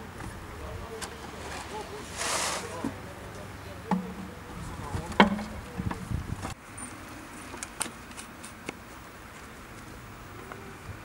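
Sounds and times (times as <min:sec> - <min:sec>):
hollow knocks of plastic tubes: 0:03.9 - 0:04.3, 0:04.9 - 0:06.0.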